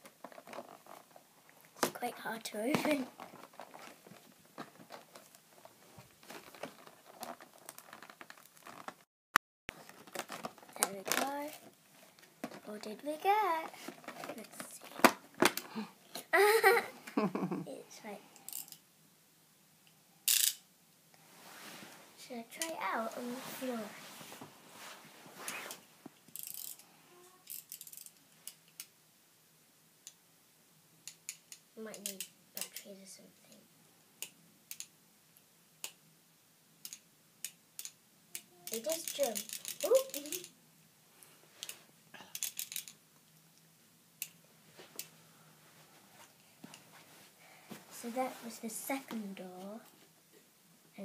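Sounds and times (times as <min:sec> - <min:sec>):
plastic toy rustling: 0:00.0 - 0:01.2, 0:01.8 - 0:09.0, 0:09.7 - 0:15.7, 0:21.6 - 0:26.8, 0:38.5 - 0:40.5, 0:41.6 - 0:43.0
faint clicks and rattles: 0:31.0 - 0:33.0, 0:36.8 - 0:40.6, 0:41.6 - 0:45.2.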